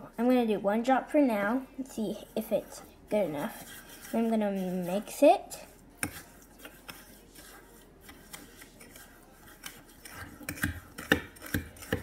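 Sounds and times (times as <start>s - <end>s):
spoon scraping in glass: 3.3s - 12.0s.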